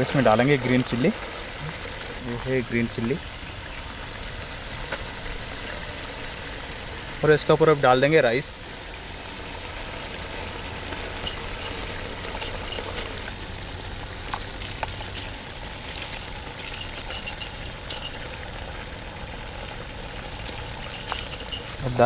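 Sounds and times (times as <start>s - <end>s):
chicken sizzling in a pot: 0.0s - 22.0s
fire low rumble: 0.0s - 22.0s
small crackles: 9.2s - 22.0s.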